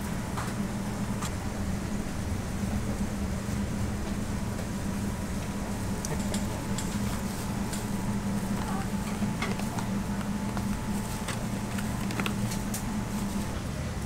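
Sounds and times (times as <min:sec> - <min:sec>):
kitchen machinery hum: 0:00.0 - 0:14.0
paper box clicks and rustles: 0:08.5 - 0:13.5.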